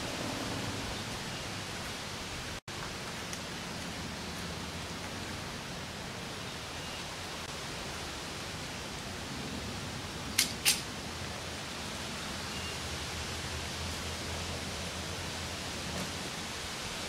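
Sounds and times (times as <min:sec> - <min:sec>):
steady hiss: 0:00.0 - 0:17.0
sharp clicks: 0:10.4 - 0:10.9.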